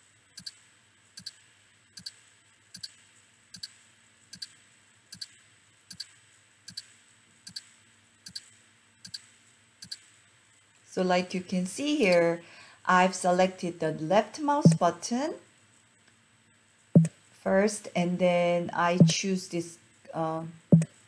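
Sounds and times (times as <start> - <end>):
computer mouse clicks: 0.4 - 0.6, 1.2 - 1.4, 2.0 - 2.2, 2.8 - 3.0, 3.6 - 5.3, 5.9 - 6.1, 8.3 - 9.2, 9.8 - 10.0.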